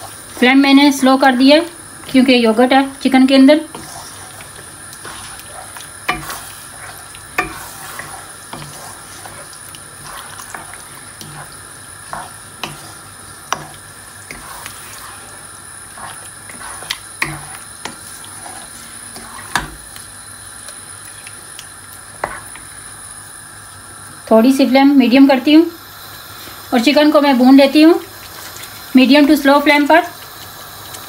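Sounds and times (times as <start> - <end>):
soft sizzle: 0.0 - 31.0
wooden spatula scraping pan: 3.2 - 19.8, 22.2 - 22.6
spatula knocking against pan: 6.1 - 6.5, 7.3 - 8.8, 17.2 - 18.0.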